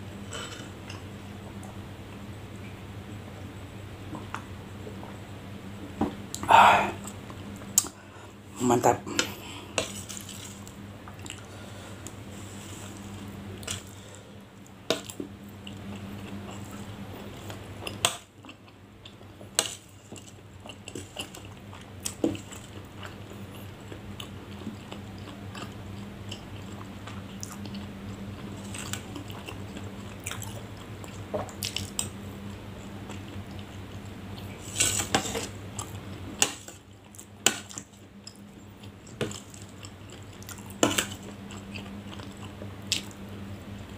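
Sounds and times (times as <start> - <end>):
chewing: 9.2 - 11.5, 14.9 - 32.2, 33.0 - 43.2.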